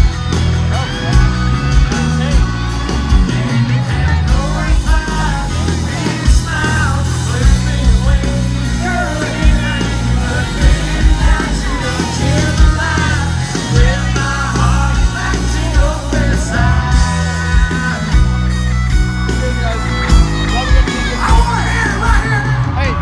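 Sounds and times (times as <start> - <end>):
acoustic and electric guitars: 0.0 - 23.0
heavy bass line: 0.0 - 23.0
steady drum beat: 0.0 - 23.0
person singing: 3.4 - 18.4.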